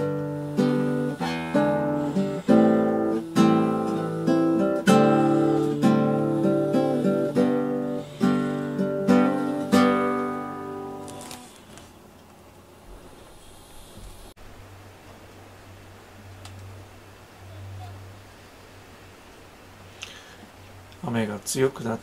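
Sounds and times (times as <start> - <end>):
acoustic guitar strumming chords: 0.0 - 11.6.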